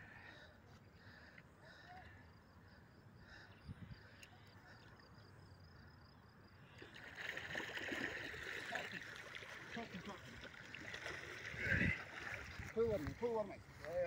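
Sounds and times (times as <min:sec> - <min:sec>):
insects chirring: 0:00.2 - 0:14.0
fish thrashing and water splashing: 0:06.8 - 0:13.1.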